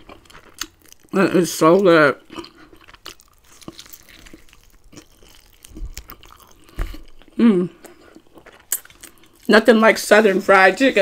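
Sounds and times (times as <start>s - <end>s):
chewing with wet clicks: 0.0s - 9.5s
person humming: 7.4s - 7.8s.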